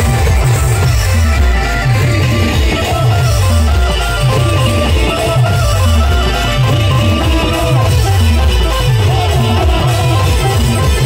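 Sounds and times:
drums beating steady rhythm: 0.0 - 11.0
heavy bass: 0.0 - 11.0
melodic lead line: 0.0 - 11.0.

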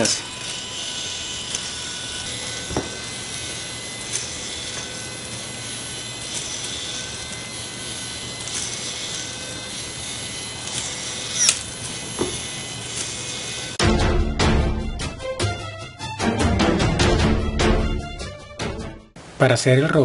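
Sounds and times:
small motor and gears whirring: 0.0 - 13.8.

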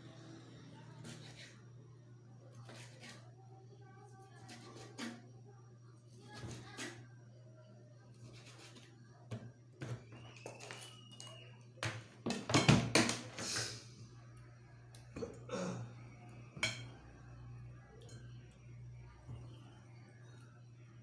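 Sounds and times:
plates clattering: 12.3 - 13.4, 16.6 - 17.0
steady low hum: 13.6 - 21.0.

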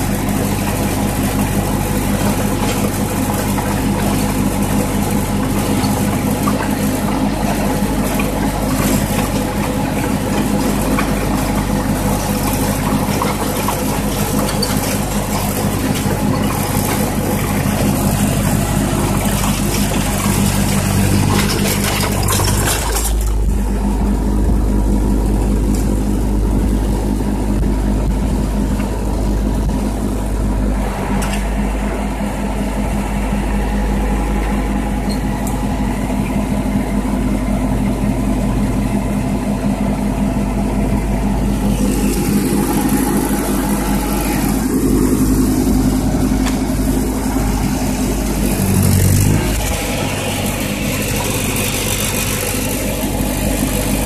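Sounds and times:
rake dragging over gravel: 0.0 - 24.2, 41.5 - 54.0
tractor engine running: 0.0 - 54.0.

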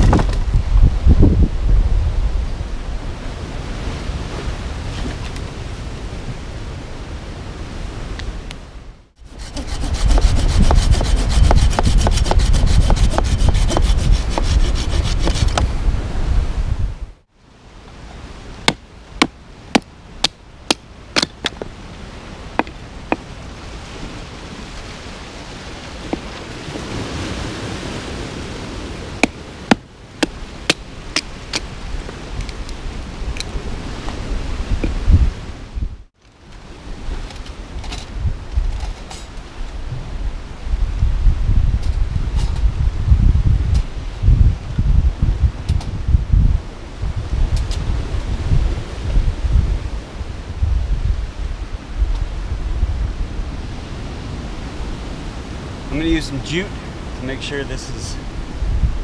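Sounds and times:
wind on microphone: 0.0 - 17.2, 21.5 - 59.0
saw rasping through wood: 9.2 - 15.6
knife batoned through wood: 9.2 - 15.7.

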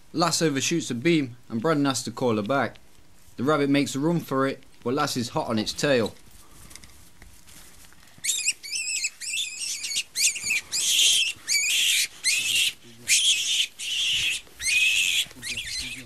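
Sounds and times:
rabbit screaming shrill squeals: 8.2 - 16.0.

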